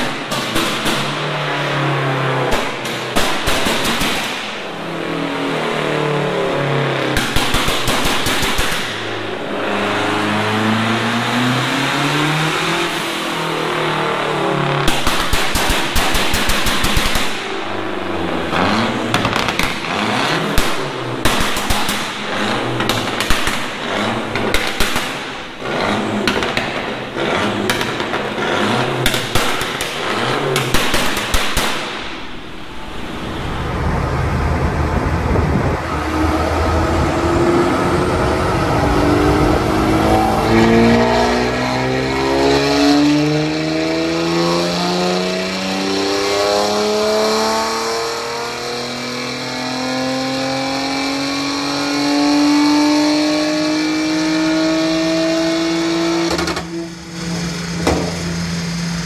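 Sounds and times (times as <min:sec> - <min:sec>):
anti-lag bangs and crackles: 0:00.0 - 0:01.3, 0:02.5 - 0:04.6, 0:07.2 - 0:09.1, 0:14.8 - 0:17.6, 0:20.5 - 0:32.4
engine revs climbing: 0:08.6 - 0:15.0, 0:17.2 - 0:30.9, 0:32.2 - 0:59.0.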